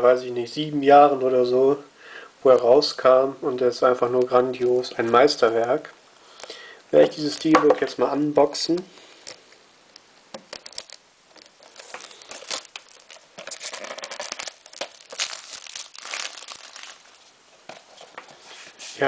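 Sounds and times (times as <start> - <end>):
plastic shrink wrap crinkling: 10.3 - 18.3.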